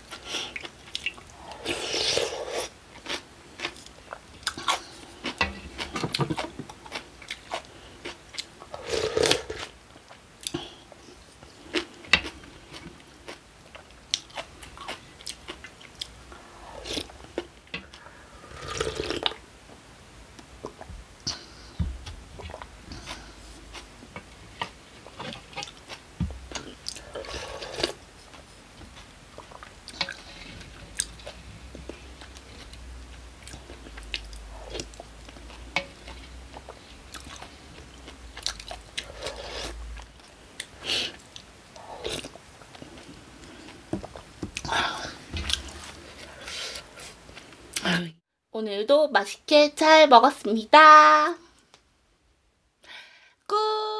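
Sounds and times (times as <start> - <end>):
chewing and crunching food: 0.0 - 16.2, 22.4 - 47.8.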